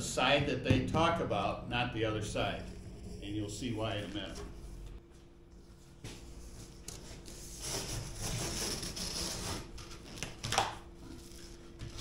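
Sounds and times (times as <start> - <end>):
cardboard being cut: 7.6 - 9.7.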